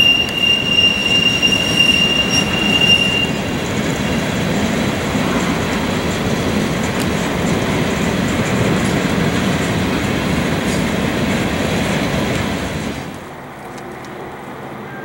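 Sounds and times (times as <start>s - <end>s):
train wheels rumbling on rail: 0.0s - 15.0s.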